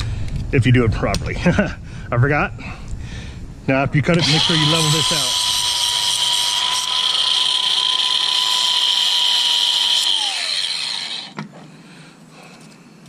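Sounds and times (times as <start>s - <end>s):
angle grinder whining: 4.1s - 11.4s
grinder disc spinning down: 4.2s - 11.4s.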